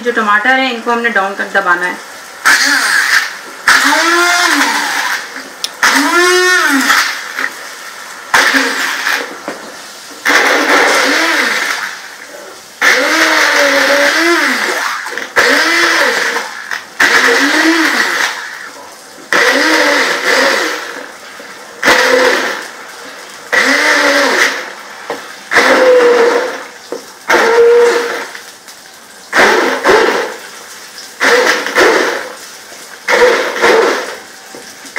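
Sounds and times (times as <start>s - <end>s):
stick blender chopping: 2.5s - 7.6s, 8.4s - 12.1s, 12.8s - 21.0s, 21.8s - 22.7s, 23.5s - 28.3s, 29.4s - 30.4s, 31.2s - 32.4s, 33.1s - 34.7s.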